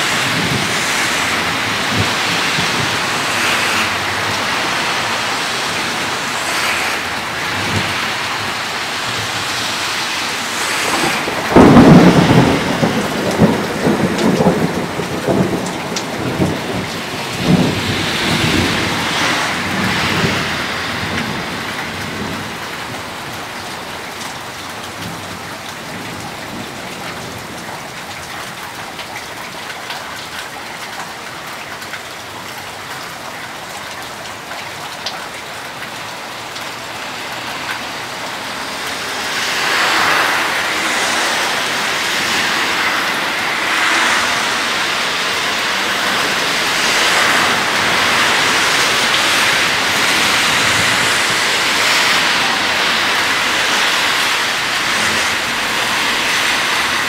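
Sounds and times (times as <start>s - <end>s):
thunder clap and rumble: 0.0s - 23.7s, 38.8s - 57.0s
steady rain: 0.0s - 57.0s.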